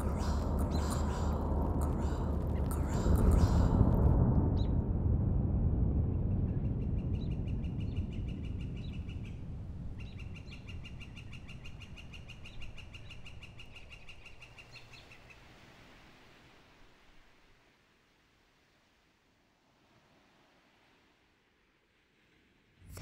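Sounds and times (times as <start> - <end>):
bird trilling: 0.0 - 3.8
low rumble: 0.0 - 12.0.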